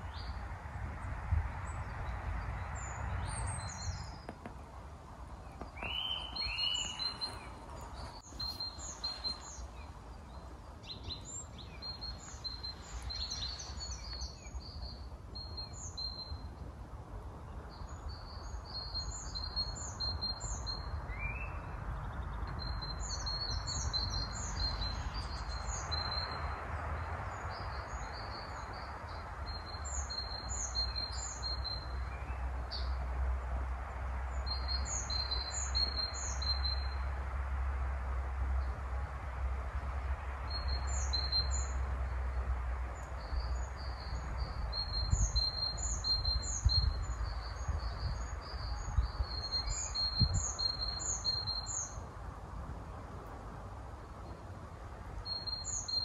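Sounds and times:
songbirds chirping: 0.0 - 56.0.

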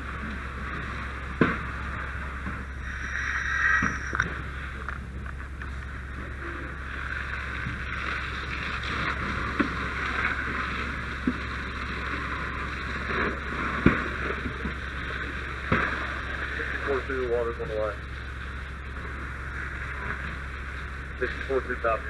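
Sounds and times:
mechanical drone: 1.8 - 10.5
hiss: 2.8 - 4.5.

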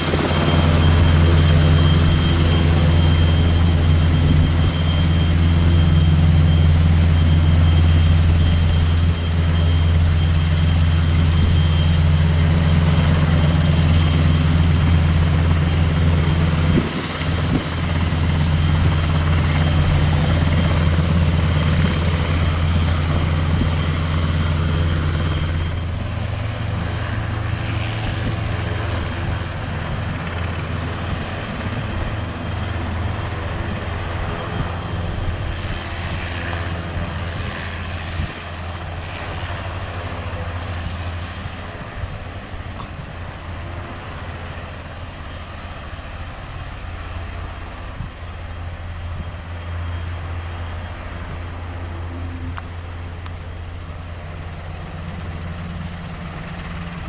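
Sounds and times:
helicopter rotor drone: 0.0 - 57.0
turbine whine: 0.0 - 57.0.

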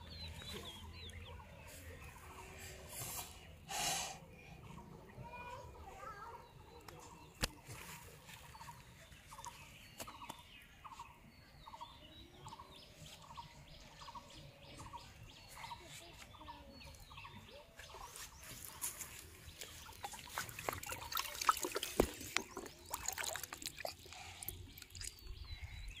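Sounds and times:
fish thrashing in a bucket: 19.5 - 25.3.

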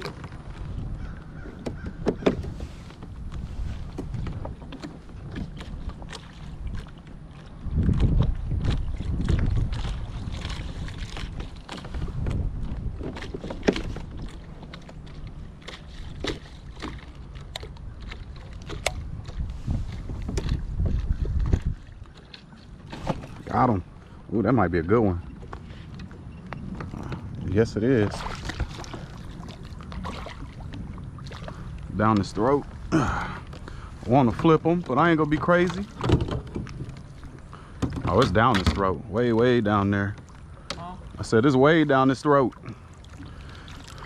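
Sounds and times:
knocks and clicks on plastic kayak: 0.0 - 6.8, 11.2 - 23.6, 35.3 - 37.0, 37.8 - 38.9
wind rumble on microphone: 0.0 - 41.6.

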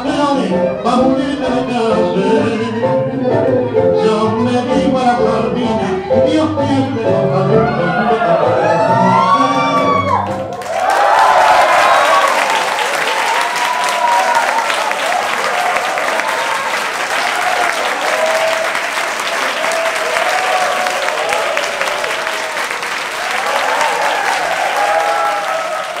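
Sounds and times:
voices cheering: 7.7 - 26.0
audience clapping: 9.8 - 26.0.

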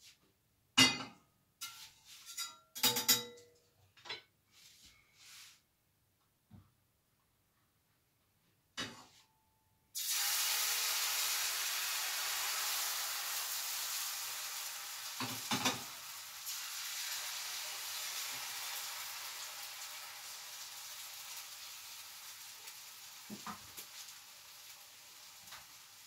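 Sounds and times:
pancakes sizzling in a pan: 10.0 - 26.0.

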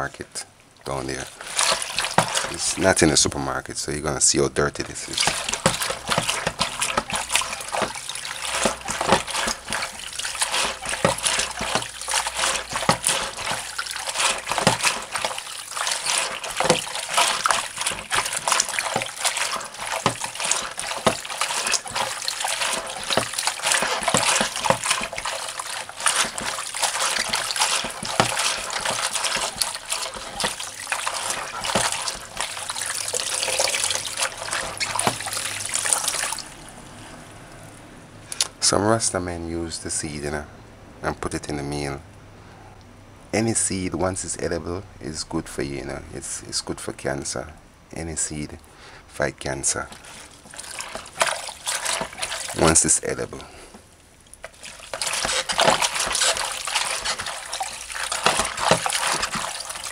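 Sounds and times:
hands washing leaves in water: 0.8 - 37.3, 49.2 - 59.9.

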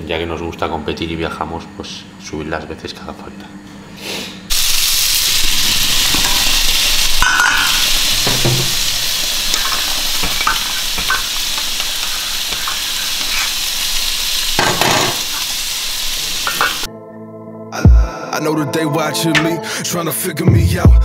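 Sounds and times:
spoon clinking against pot: 7.2 - 8.6, 9.5 - 11.3.

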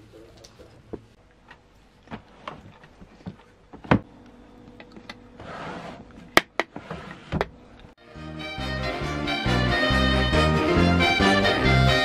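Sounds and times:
drawer scraping on wooden runners: 5.4 - 7.5.

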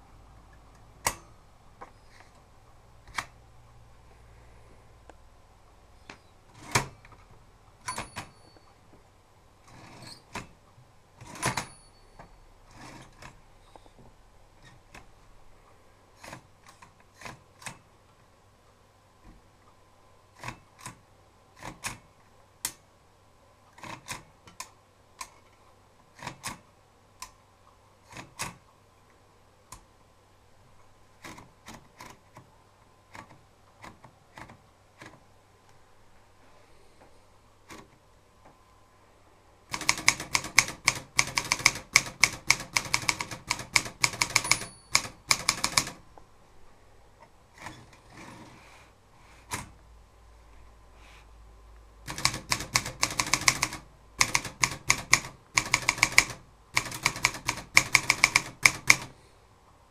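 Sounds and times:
typewriter mechanism clacking: 7.8 - 8.3, 11.2 - 13.4, 21.6 - 22.8, 23.7 - 25.4, 26.2 - 26.6, 28.1 - 28.7, 39.7 - 46.0, 52.1 - 59.2
typewriter keystrokes: 11.2 - 11.8, 16.2 - 17.9, 21.6 - 22.1, 28.1 - 28.7, 39.7 - 46.0, 52.1 - 59.2.

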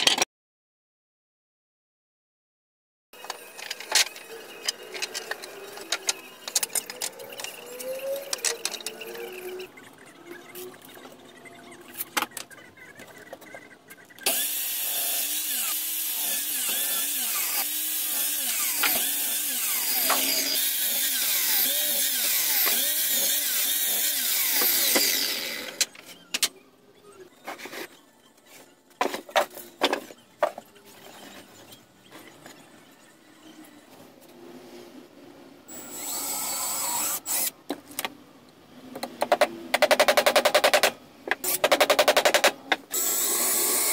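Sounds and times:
mitre saw cutting boards: 14.2 - 26.0, 39.3 - 43.9.

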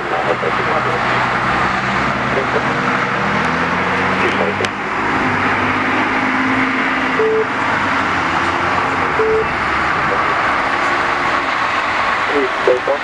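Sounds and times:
road traffic hiss: 0.0 - 13.0
short beeps: 7.2 - 7.5, 9.1 - 9.5.

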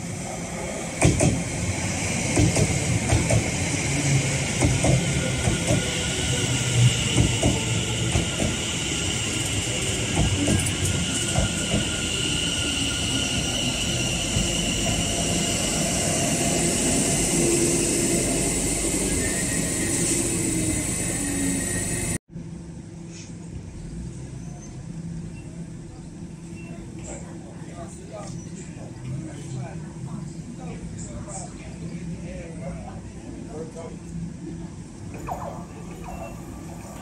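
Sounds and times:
train high whine: 0.0 - 22.2.

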